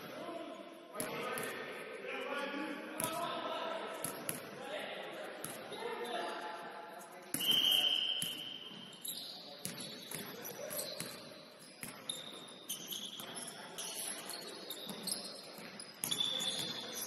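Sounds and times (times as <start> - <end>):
sneakers squeaking on court: 8.1 - 17.0.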